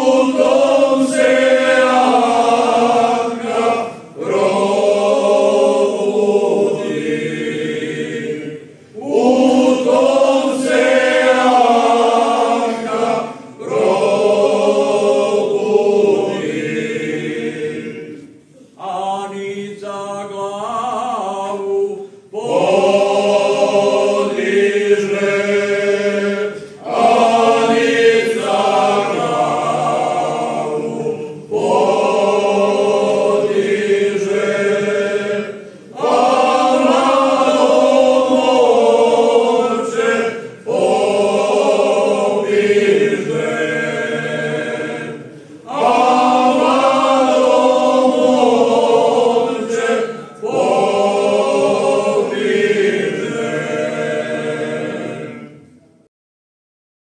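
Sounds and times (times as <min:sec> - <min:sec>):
men singing in harmony: 0:18.8 - 0:55.6.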